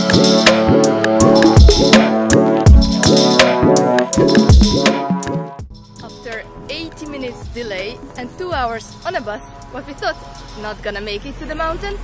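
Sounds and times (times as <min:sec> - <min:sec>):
drum beat: 0:00.0 - 0:06.1, 0:07.4 - 0:07.9, 0:08.5 - 0:08.9
pitched notes: 0:00.0 - 0:12.0.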